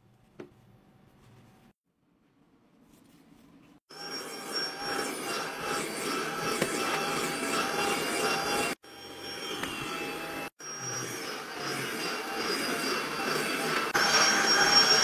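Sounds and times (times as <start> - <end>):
vacuum cleaner running: 3.9 - 15.0.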